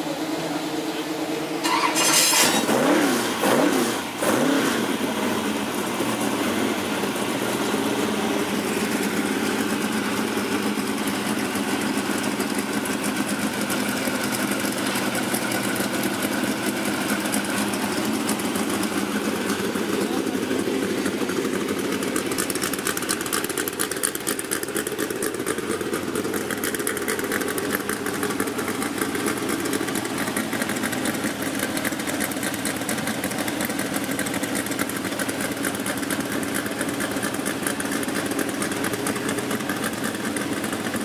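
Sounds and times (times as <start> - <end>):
car engine revving and idling: 0.0 - 41.0.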